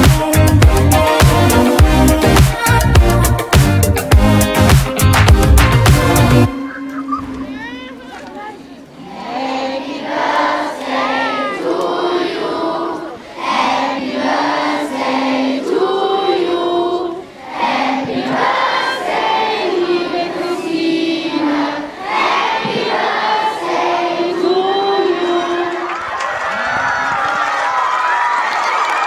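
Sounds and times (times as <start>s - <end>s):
children singing in unison: 9.0s - 25.9s.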